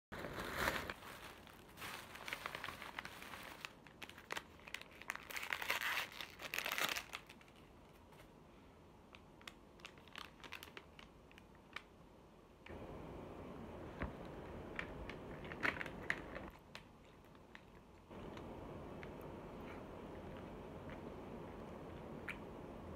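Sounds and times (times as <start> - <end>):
paper bag crinkling and rustling: 0.2 - 8.3, 9.8 - 11.4, 14.0 - 18.5.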